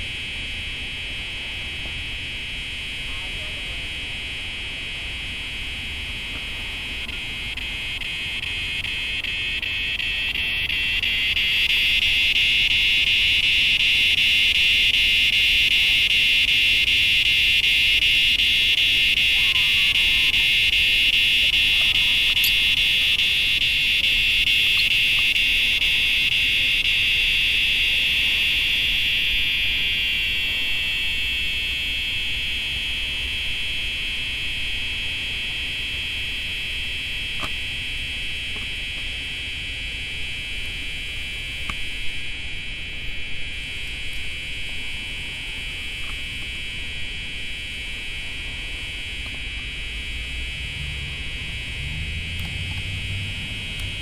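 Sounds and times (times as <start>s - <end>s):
cicadas singing in chorus: 6.8s - 38.0s.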